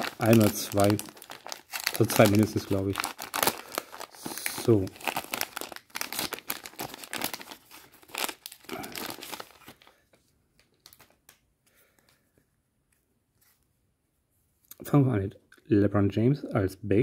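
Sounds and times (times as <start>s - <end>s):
plastic wrapper crinkling: 0.0s - 11.5s
faint rustles of cards: 0.0s - 14.7s.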